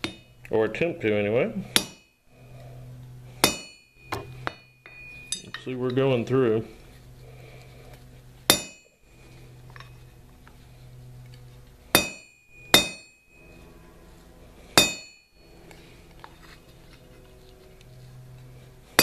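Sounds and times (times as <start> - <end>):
hammer striking chisel on steel: 1.7 - 2.1, 3.4 - 6.0, 8.5 - 9.0, 11.9 - 13.4, 14.8 - 15.3.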